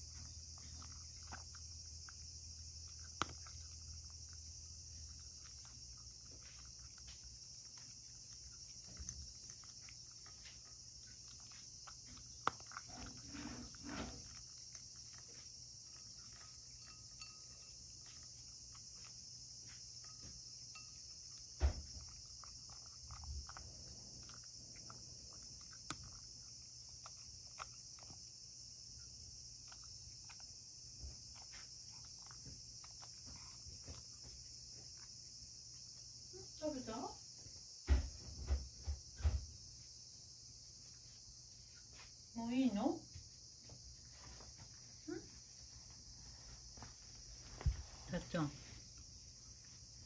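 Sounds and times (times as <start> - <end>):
cat crunching dry food: 0.0 - 36.2.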